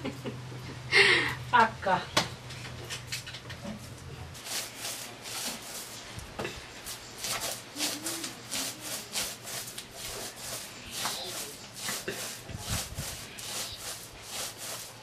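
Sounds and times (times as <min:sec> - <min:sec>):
hands scraping wet clay: 0:04.4 - 0:15.0.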